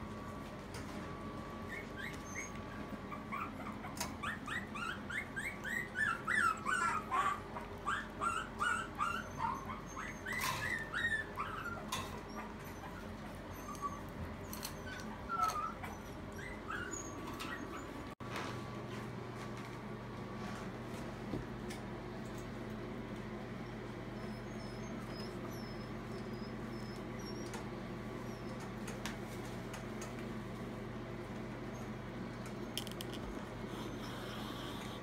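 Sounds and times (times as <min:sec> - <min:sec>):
puppies whimpering: 0:01.2 - 0:18.2, 0:23.7 - 0:28.8, 0:33.6 - 0:35.0.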